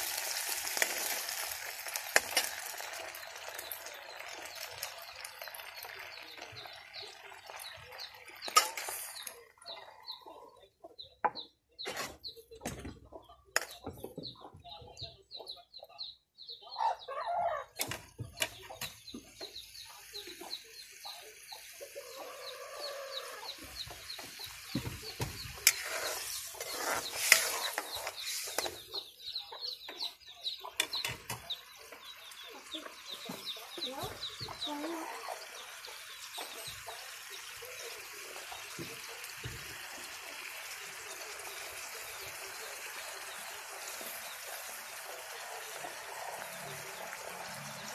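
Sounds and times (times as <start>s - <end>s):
chickens clucking: 2.2s - 47.9s.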